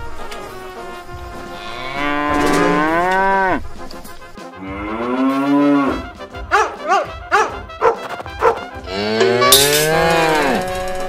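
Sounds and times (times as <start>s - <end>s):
cow mooing: 1.3s - 3.6s, 4.6s - 6.2s, 8.8s - 11.0s
small dog barking: 6.5s - 8.6s.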